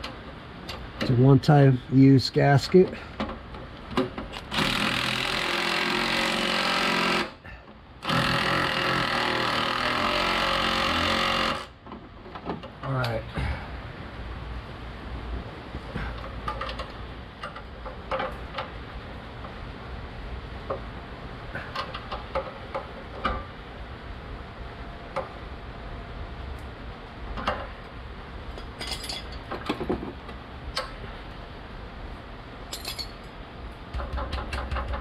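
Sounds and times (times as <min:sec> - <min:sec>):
tools clinking on metal exhaust: 0:28.5 - 0:30.2, 0:32.7 - 0:33.4.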